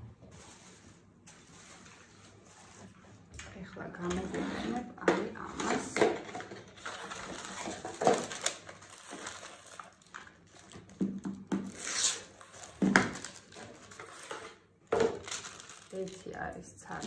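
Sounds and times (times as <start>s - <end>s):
paper and fabric rustling: 0.2s - 11.0s, 11.7s - 17.0s.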